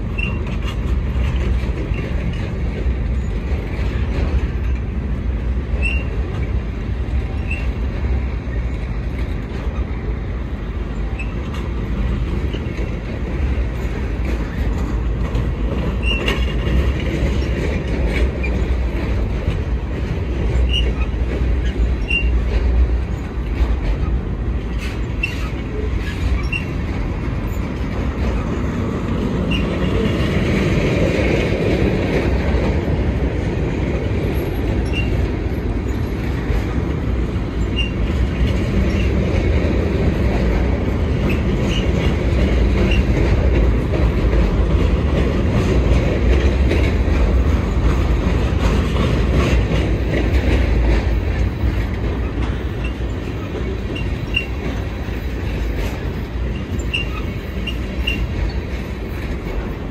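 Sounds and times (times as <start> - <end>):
clatter over rail joints: 0.0 - 59.9
train wheels rumbling on rails: 0.0 - 59.9
high wheel squeals: 0.1 - 0.5, 5.8 - 6.2, 16.0 - 16.4, 20.6 - 22.4, 25.1 - 26.8, 34.8 - 35.2, 37.6 - 38.1, 52.8 - 54.9, 56.5 - 58.6.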